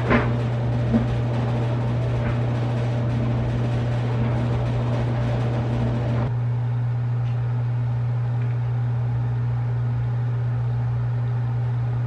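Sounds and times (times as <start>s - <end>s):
loud steady low hum: 0.0s - 12.0s.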